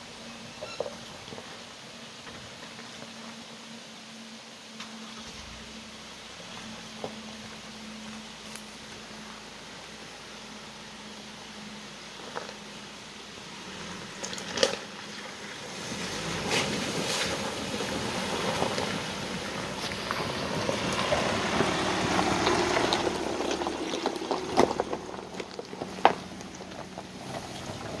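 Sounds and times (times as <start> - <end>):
tyres crunching over gravel: 0.0 - 3.8, 5.0 - 28.0
vehicle engine running: 4.8 - 28.0
stones knocking under tyres: 16.5 - 28.0.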